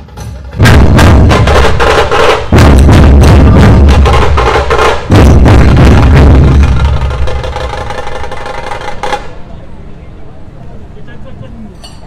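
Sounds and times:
deep booming drum beats: 0:00.0 - 0:09.4
rapid sharp drum strokes: 0:00.0 - 0:09.4.

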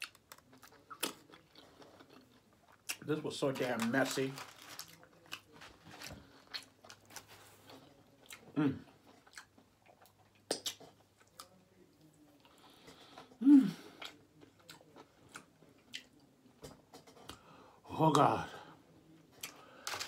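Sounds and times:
person chewing food: 0:00.0 - 0:03.1, 0:04.5 - 0:17.5.

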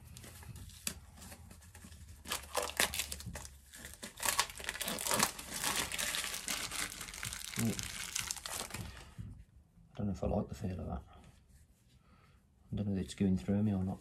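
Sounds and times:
plastic bag crinkling: 0:02.2 - 0:09.1.

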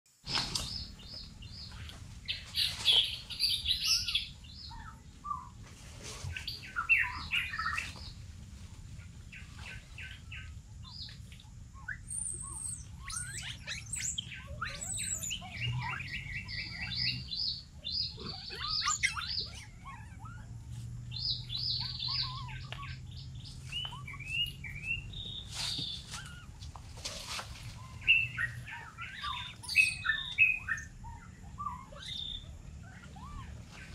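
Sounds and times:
birds chirping: 0:00.1 - 0:33.9
faint low hum: 0:00.2 - 0:33.9.

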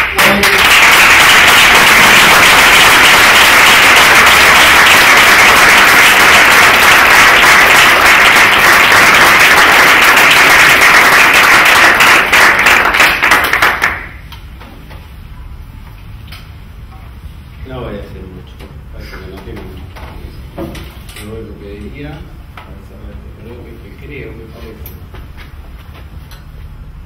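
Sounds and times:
audience applauding: 0:00.0 - 0:14.2.

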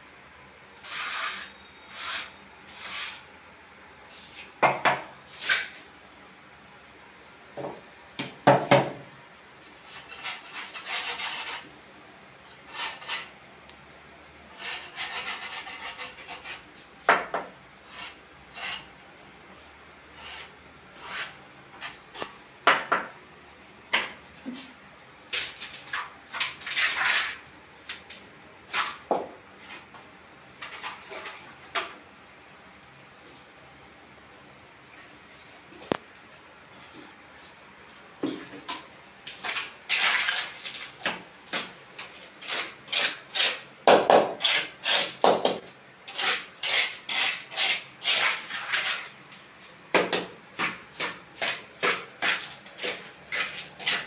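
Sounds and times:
scraping and rubbing: 0:00.8 - 0:03.2, 0:09.9 - 0:11.7, 0:14.6 - 0:16.6, 0:20.2 - 0:22.3, 0:25.3 - 0:27.4, 0:41.6 - 0:43.6, 0:44.4 - 0:49.8, 0:50.6 - 0:54.0.

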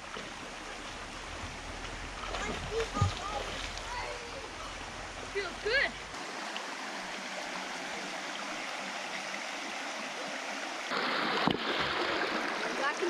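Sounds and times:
river water running over stones: 0:00.0 - 0:13.0
short knock or splash: 0:10.9 - 0:12.2.

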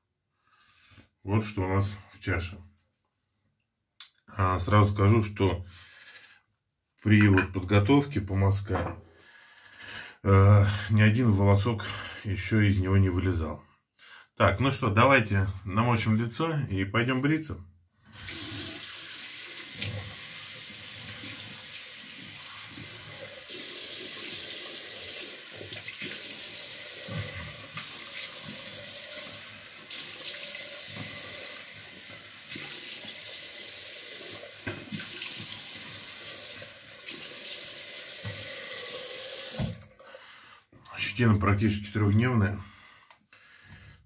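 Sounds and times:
tap water running into sink: 0:18.1 - 0:39.9
water splashing: 0:18.2 - 0:33.6.

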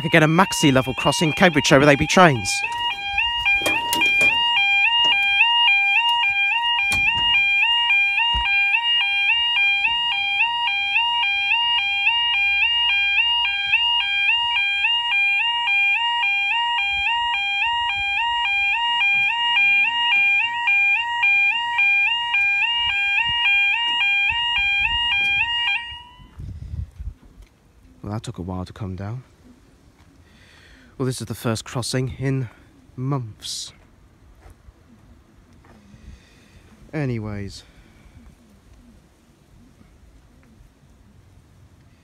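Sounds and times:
level crossing warning alarm: 0:00.0 - 0:26.4.

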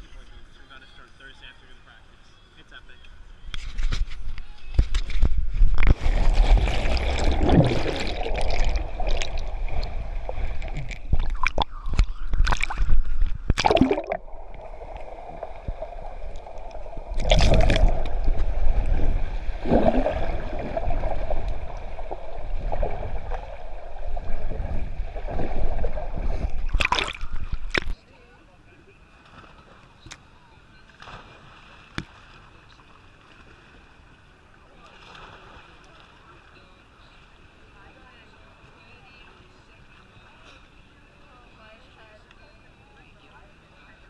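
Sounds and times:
muffled underwater water sloshing: 0:04.8 - 0:28.0
bubbling: 0:05.4 - 0:28.0
rush of swimming strokes: 0:05.9 - 0:11.7, 0:12.4 - 0:27.8.

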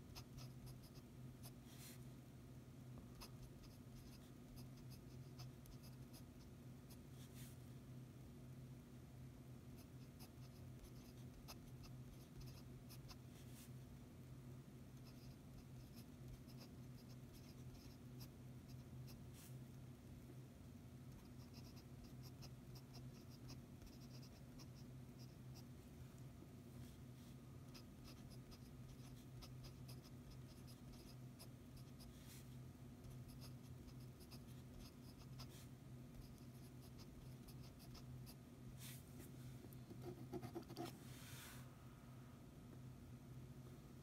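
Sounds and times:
pen nib scratching on paper: 0:00.0 - 0:01.7, 0:03.1 - 0:07.0, 0:09.7 - 0:13.2, 0:15.0 - 0:19.2, 0:21.1 - 0:25.7, 0:27.7 - 0:32.1, 0:33.0 - 0:38.4, 0:39.9 - 0:41.0
low steady hum: 0:00.0 - 0:44.0.

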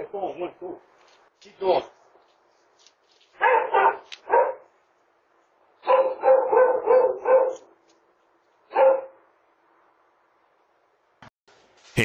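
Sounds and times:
dog barking loudly: 0:03.4 - 0:04.7, 0:05.8 - 0:07.7, 0:08.7 - 0:09.2.

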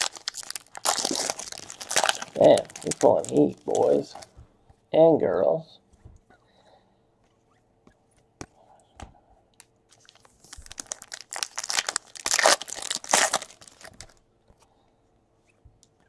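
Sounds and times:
foil wrapper tearing and crinkling: 0:00.0 - 0:04.2, 0:09.9 - 0:14.2.

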